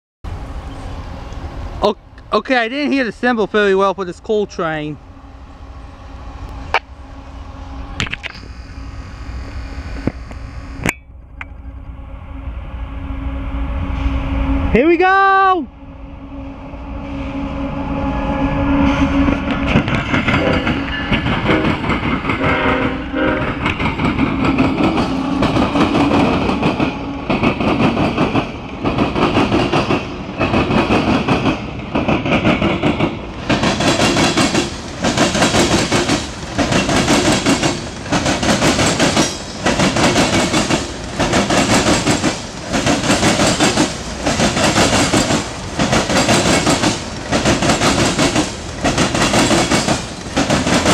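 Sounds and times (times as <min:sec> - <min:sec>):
diesel locomotive engines: 0:00.3 - 0:50.9
train wheels clickety-clack: 0:19.2 - 0:50.9.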